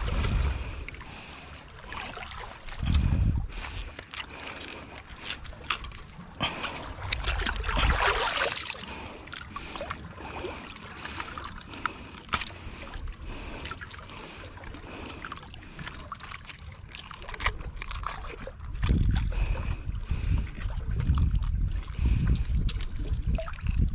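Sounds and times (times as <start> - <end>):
wind rumbling on microphone: 0.0 - 1.3, 2.0 - 4.0, 5.2 - 9.2, 17.4 - 23.9
water sloshing and splashing: 0.0 - 23.9.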